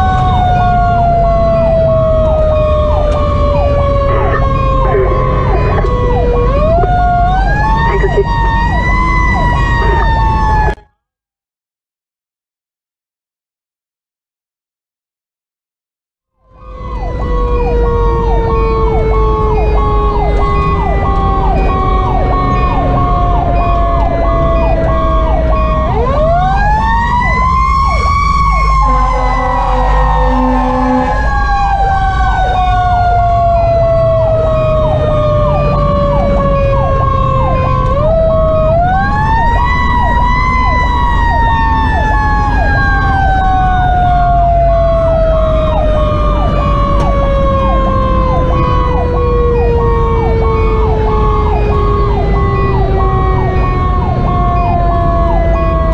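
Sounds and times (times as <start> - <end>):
diesel engine running: 0.0 - 10.8
electronic siren yelp: 0.0 - 10.9, 16.4 - 55.9
mechanical siren wailing: 0.0 - 11.0, 16.4 - 55.9
air horns blowing: 28.7 - 31.8.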